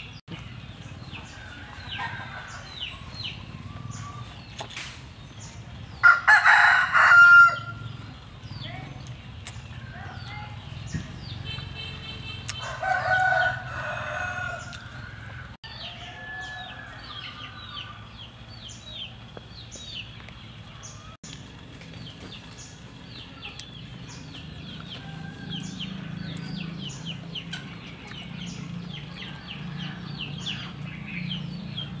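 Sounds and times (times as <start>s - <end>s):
rooster crowing: 6.0s - 7.8s, 12.6s - 18.1s, 24.9s - 26.6s.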